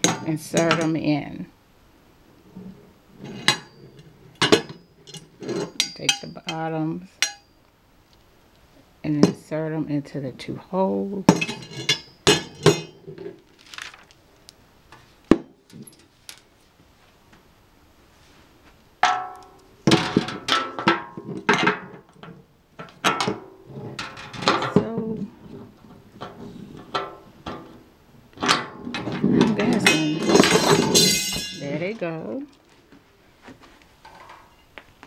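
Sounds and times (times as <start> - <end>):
metal cart parts clanking: 3.2 - 7.5, 11.3 - 13.9, 19.0 - 27.8, 28.4 - 32.4.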